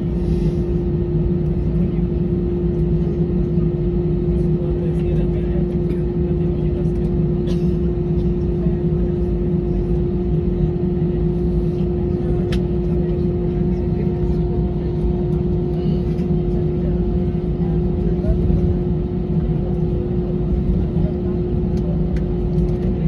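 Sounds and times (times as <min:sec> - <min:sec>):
jet engines idling: 0:00.0 - 0:23.0.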